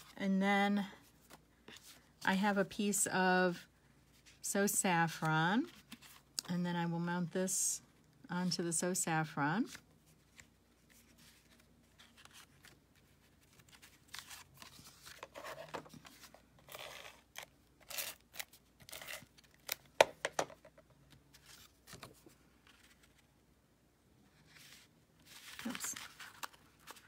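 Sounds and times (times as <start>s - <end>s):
paper rustling and scraping: 10.1s - 18.2s, 24.3s - 27.0s.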